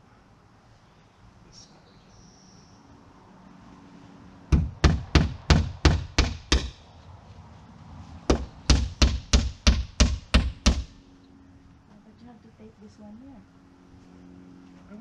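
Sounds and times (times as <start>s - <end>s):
hammer driving nails into wood: 4.5s - 6.8s, 8.3s - 11.0s.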